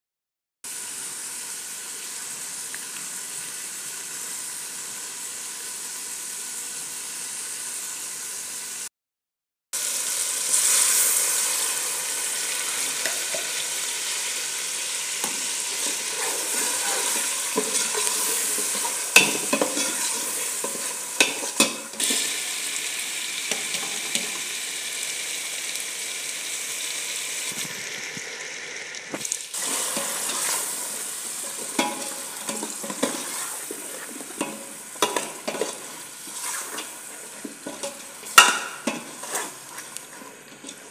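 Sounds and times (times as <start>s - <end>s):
spices sizzling in oil: 0.7s - 8.9s, 9.8s - 40.9s
metal spoon scraping a pot: 15.2s - 22.2s, 29.6s - 40.9s.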